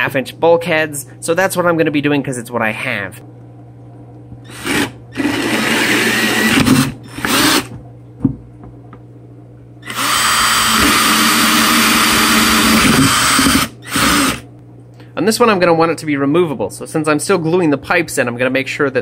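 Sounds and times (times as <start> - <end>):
power drill cutting plastic: 4.5 - 7.7, 9.8 - 14.4.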